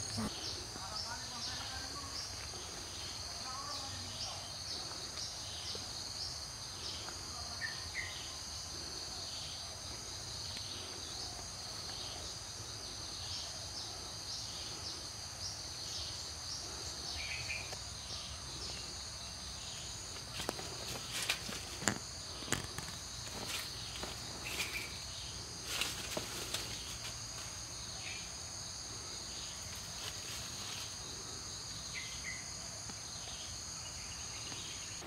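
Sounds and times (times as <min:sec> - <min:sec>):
crickets droning: 0:00.0 - 0:35.0.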